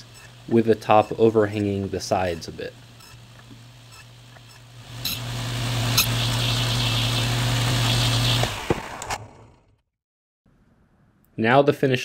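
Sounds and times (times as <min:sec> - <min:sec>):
saw cutting wood: 0:03.9 - 0:09.5
table saw running: 0:04.8 - 0:09.5.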